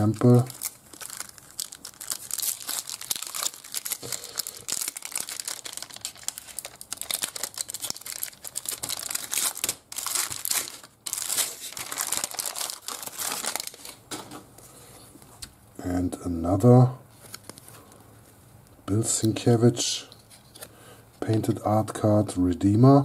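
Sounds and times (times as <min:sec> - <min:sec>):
foil wrapper crinkling and tearing: 0:00.0 - 0:14.0.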